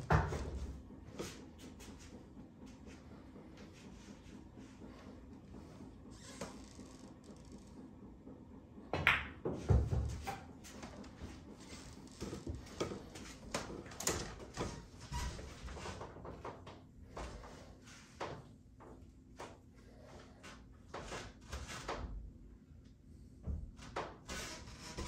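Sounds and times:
pool balls clacking: 9.0 - 10.3.

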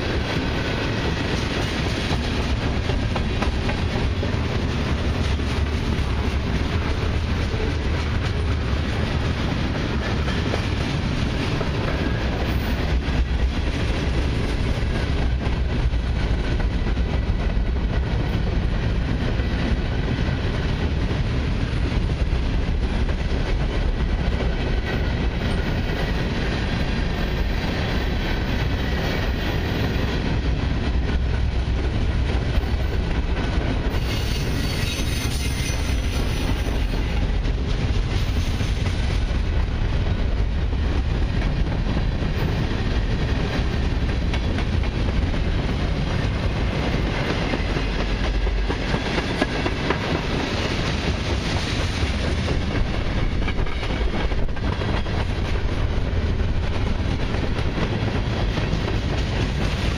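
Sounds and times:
freight train wheels clattering: 0.0 - 59.9
high-pitched rail noise: 33.9 - 39.5.

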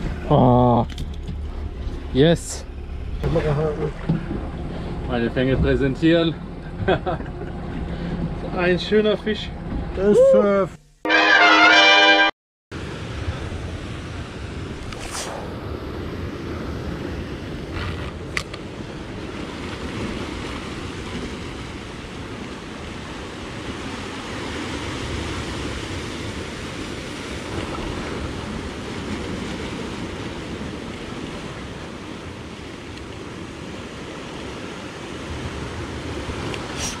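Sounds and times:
surf breaking on rocky shore: 12.8 - 37.0.

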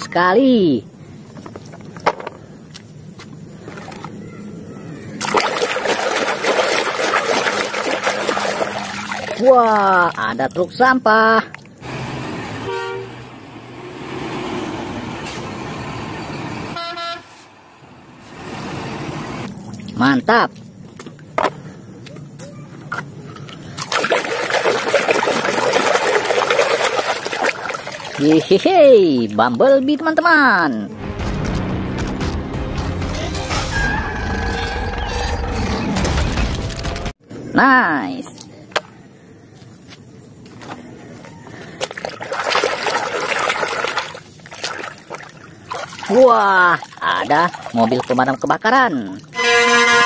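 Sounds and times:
hand splashing water in tub: 5.2 - 10.6, 23.8 - 29.5, 41.7 - 49.3.

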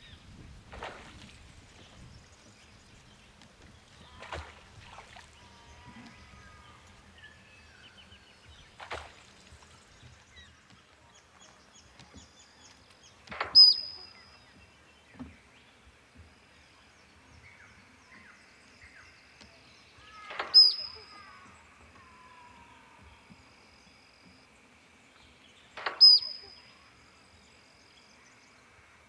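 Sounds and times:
water splashing: 0.0 - 15.5
small birds chirping: 0.0 - 28.9
duck short high whistle: 20.6 - 21.0.

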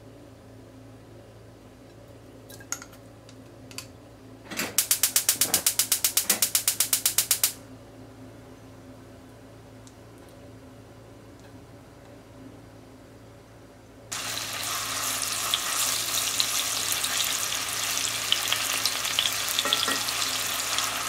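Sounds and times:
gas hob igniter clicking: 4.8 - 7.6.

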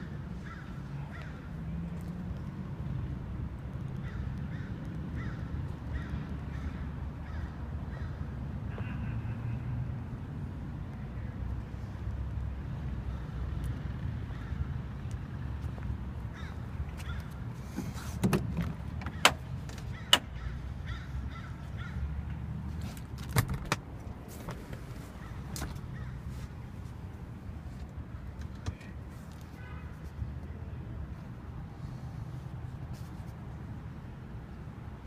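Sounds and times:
car door latch clicks and clunks: 18.2 - 20.3, 23.0 - 24.9.

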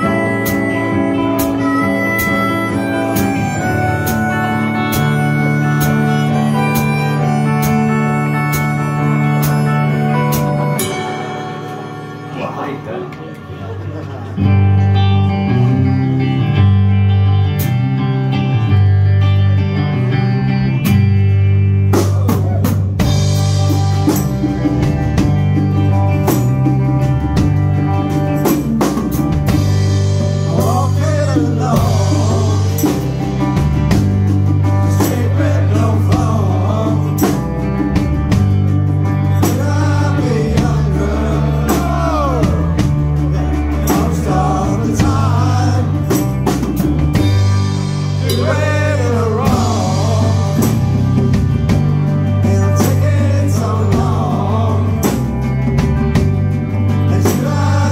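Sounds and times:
live rock band playing: 0.0 - 57.9
man singing lead vocal: 30.4 - 33.6, 34.8 - 37.9, 39.4 - 46.6, 48.2 - 51.4, 52.4 - 55.6, 56.9 - 57.9.

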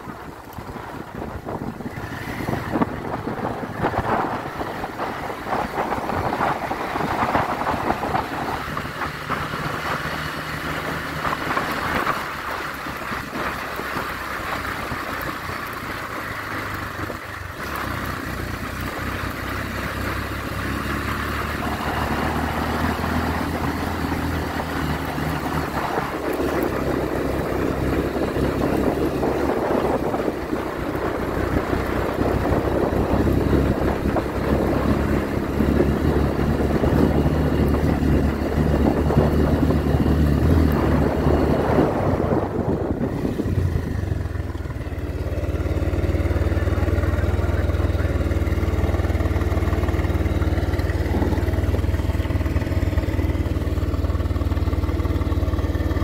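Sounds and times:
wind noise on microphone: 0.0 - 15.8, 20.6 - 45.1
motorcycle engine running: 0.0 - 56.0.

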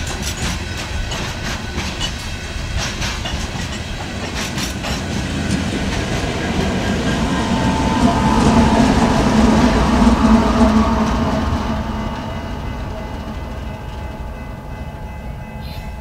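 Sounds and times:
train wheels clicking over rail joints: 0.0 - 7.3
diesel locomotive engine hum: 0.0 - 16.0.

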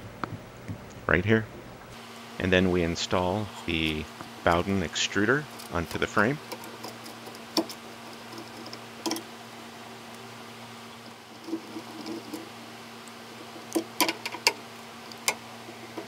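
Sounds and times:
steady low hum: 0.0 - 16.0
metal parts being handled: 5.5 - 9.3, 11.4 - 12.5, 13.4 - 16.0.

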